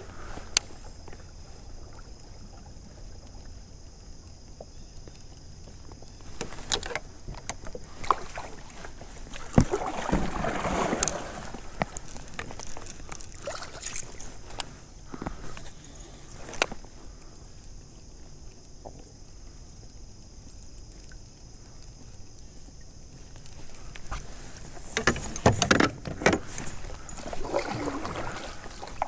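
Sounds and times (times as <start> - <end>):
water splashing: 6.2 - 14.7, 26.4 - 29.0
water washing: 7.8 - 14.7, 26.4 - 29.0.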